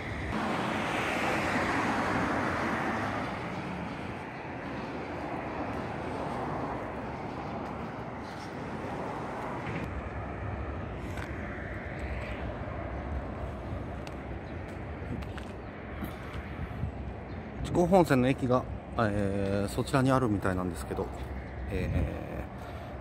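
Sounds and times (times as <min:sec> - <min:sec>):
vehicle passing: 0:00.0 - 0:17.0.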